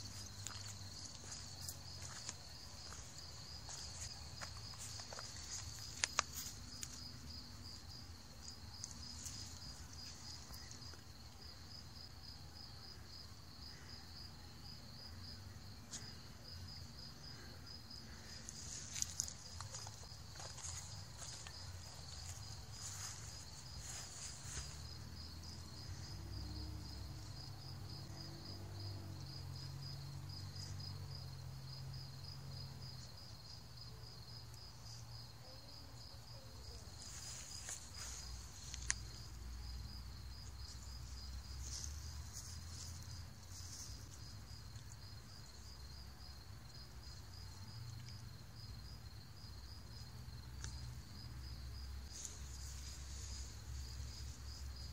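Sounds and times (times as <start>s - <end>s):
crickets chirping: 0.0s - 54.9s
rustling: 18.1s - 25.0s, 52.0s - 54.9s.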